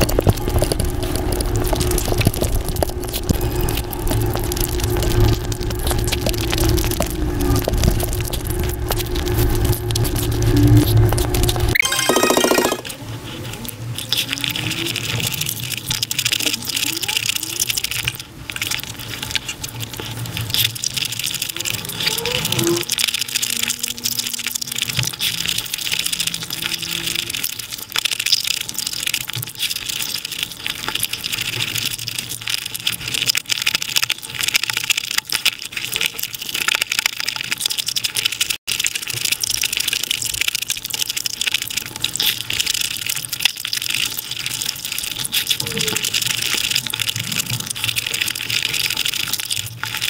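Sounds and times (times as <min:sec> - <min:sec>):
sped-up chewing and crunching: 0:00.0 - 0:11.7, 0:13.4 - 0:22.1, 0:22.9 - 0:50.0.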